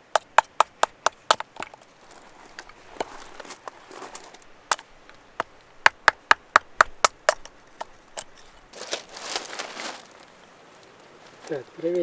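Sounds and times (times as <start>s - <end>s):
wood splitting knocks: 0.0s - 8.7s
short rustle: 1.7s - 5.2s, 7.8s - 11.7s.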